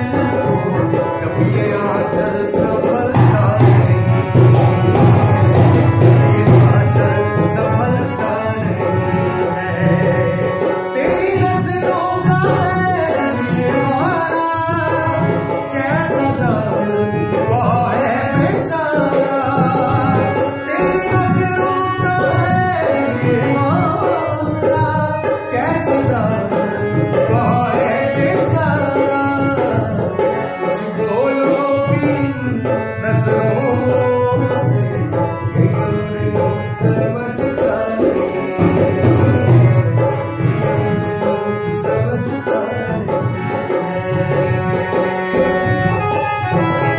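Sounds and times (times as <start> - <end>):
harmonium chords: 0.0 - 46.9
man singing: 0.0 - 46.9.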